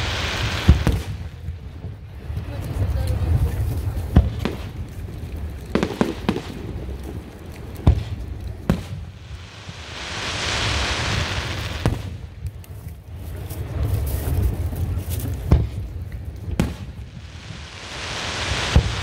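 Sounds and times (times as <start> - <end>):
firework hiss: 0.0 - 1.6, 7.8 - 12.5, 16.5 - 19.0
firework bangs: 0.0 - 2.5, 4.1 - 4.9, 5.7 - 12.4, 15.4 - 19.0.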